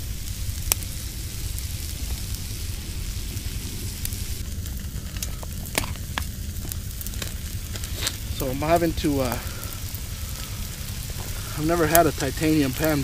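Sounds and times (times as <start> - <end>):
sharp pops: 0.0 - 13.0
steak sizzling in a frying pan: 0.0 - 13.0.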